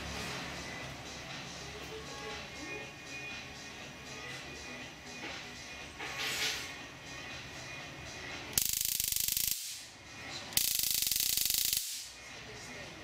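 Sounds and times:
stun gun electric crackle: 8.6 - 9.9, 10.6 - 12.1.

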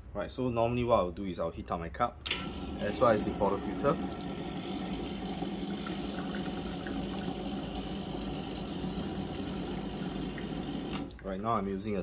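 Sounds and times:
espresso machine pump humming: 2.4 - 11.2.

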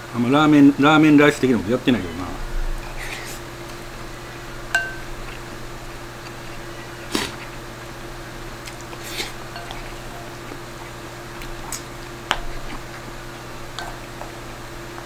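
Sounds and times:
steady low hum: 0.0 - 15.0
spoon scooping and tapping bowl: 4.8 - 5.1, 9.6 - 9.9, 13.7 - 14.4
wet chewing: 4.8 - 7.9, 8.5 - 15.0.

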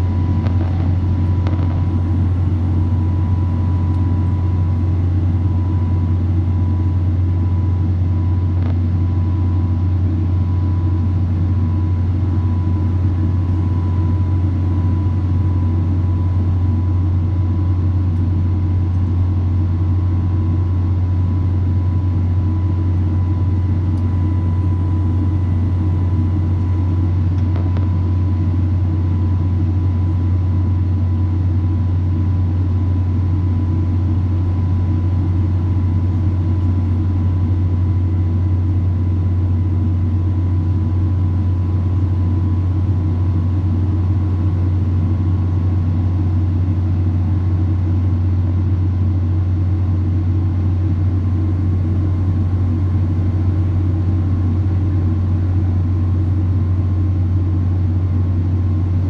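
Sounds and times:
jet engine drone and airflow: 0.0 - 59.0
thin steady whine: 0.0 - 59.0.

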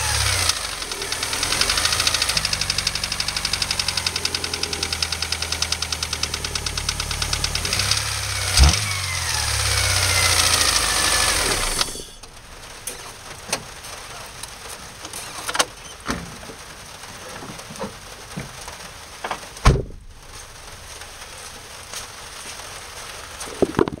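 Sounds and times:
car engine clattering: 0.0 - 24.0
heavy thump: 19.6 - 20.2.

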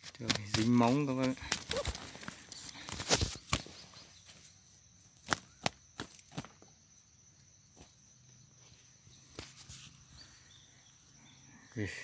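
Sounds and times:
dry stalks cracking and snapping: 0.0 - 3.8
high-pitched insect drone: 0.7 - 12.0.

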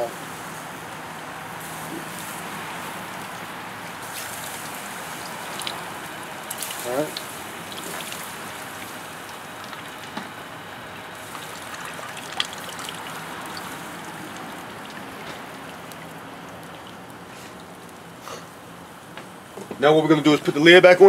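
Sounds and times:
charcoal fire sizzling and crackling: 0.0 - 21.0.

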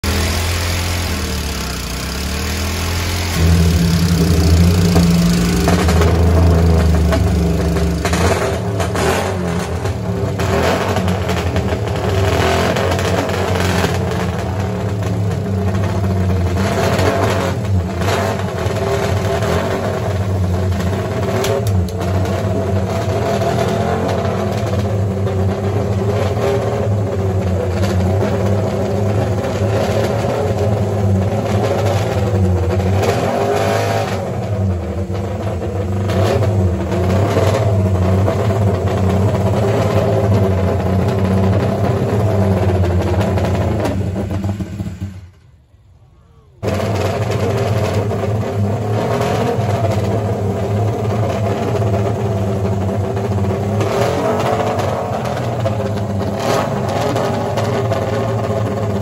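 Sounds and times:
motorcycle engine revving lightly: 0.0 - 10.0.

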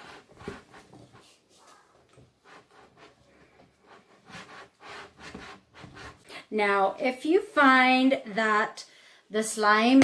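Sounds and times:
wooden spoon stirring slime: 0.0 - 6.3.

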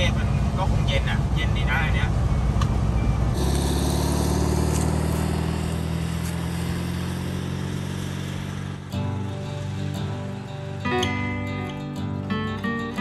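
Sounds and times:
van engine running: 0.0 - 13.0
guitar music: 8.8 - 13.0.

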